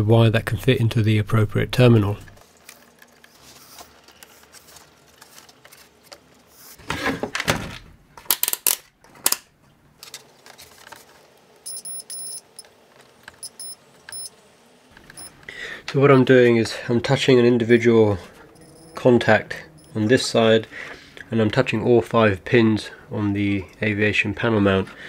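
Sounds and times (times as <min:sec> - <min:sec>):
sharp clicks and rustles of wiring: 0:02.2 - 0:06.4, 0:08.2 - 0:11.6
continuity tester beeps: 0:11.6 - 0:12.7, 0:13.4 - 0:14.3, 0:15.1 - 0:15.4, 0:18.6 - 0:19.0, 0:19.8 - 0:20.0.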